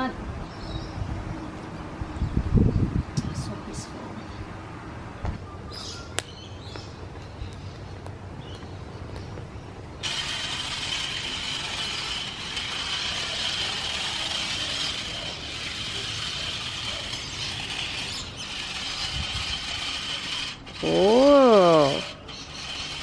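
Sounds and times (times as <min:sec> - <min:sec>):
toy car motor whining: 0:10.0 - 0:23.0.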